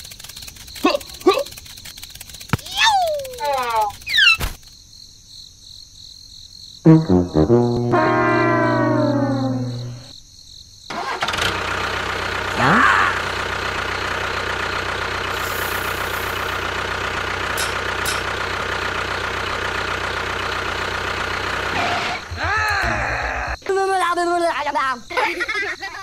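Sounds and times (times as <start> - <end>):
brief rising whine: 6.9 - 10.1
tractor engine starting and running: 10.9 - 22.8.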